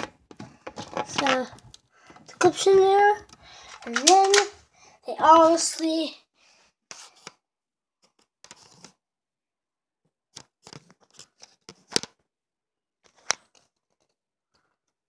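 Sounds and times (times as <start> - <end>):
plastic pistol clicks and clatter: 3.7 - 4.5.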